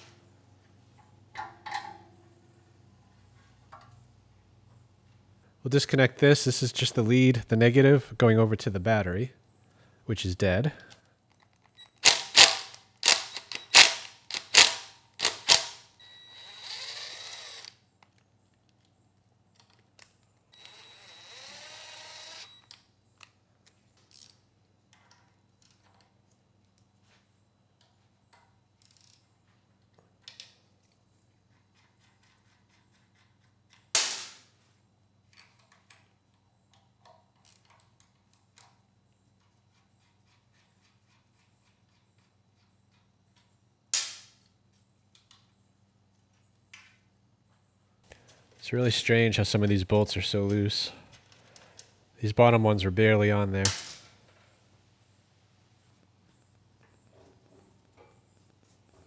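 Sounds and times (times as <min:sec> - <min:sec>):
impact driver spinning freely: 0:12.0 - 0:17.7.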